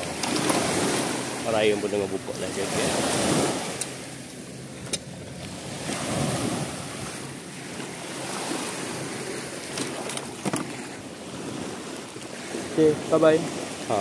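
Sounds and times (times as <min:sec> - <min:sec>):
small waves washing onto beach: 0:00.0 - 0:14.0
wind on microphone: 0:04.6 - 0:14.0.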